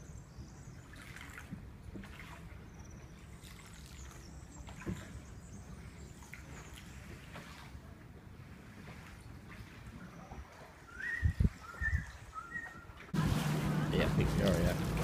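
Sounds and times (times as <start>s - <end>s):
water lapping around boat hull: 0.0s - 15.0s
steady low rumble: 13.2s - 15.0s.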